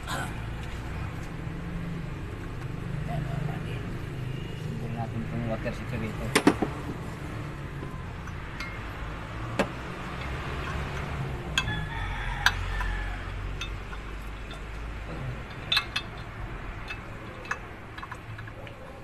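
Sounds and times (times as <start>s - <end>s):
metal part clicking and clinking: 10.1s - 19.0s.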